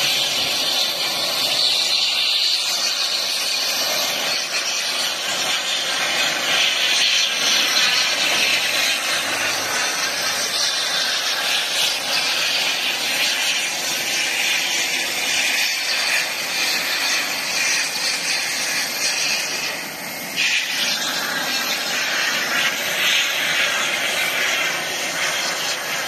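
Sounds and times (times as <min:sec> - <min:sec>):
aircraft engine hiss: 0:00.0 - 0:26.0.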